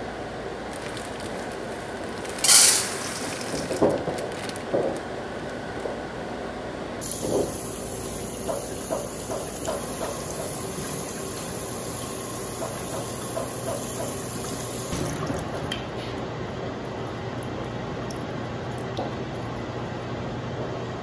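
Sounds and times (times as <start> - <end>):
corn kernels clicking: 0.8 - 5.0
tap water running onto corn: 2.3 - 4.1, 7.0 - 15.8.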